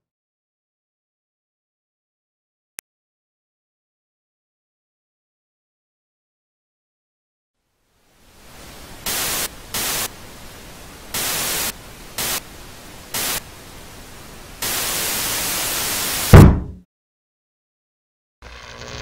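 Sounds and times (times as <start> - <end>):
television static hiss: 7.7 - 16.4
loud low boom: 16.3 - 16.8.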